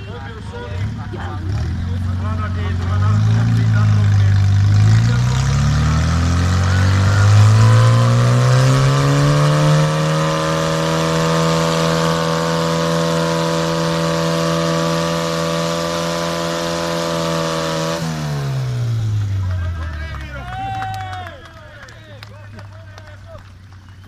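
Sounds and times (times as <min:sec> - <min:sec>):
small tractor engine revving: 0:00.0 - 0:20.4.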